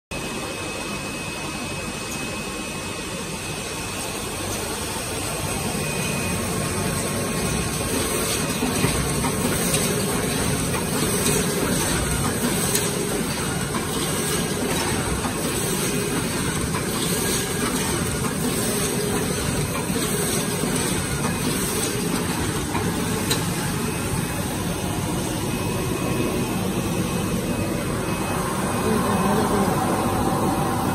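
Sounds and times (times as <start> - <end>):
machine and conveyors running: 0.1 - 30.9.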